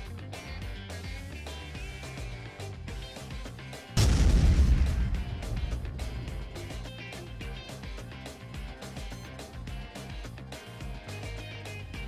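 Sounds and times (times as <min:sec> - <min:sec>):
guitar music: 0:00.0 - 0:10.2
deep gunshot-like boom: 0:04.0 - 0:07.6.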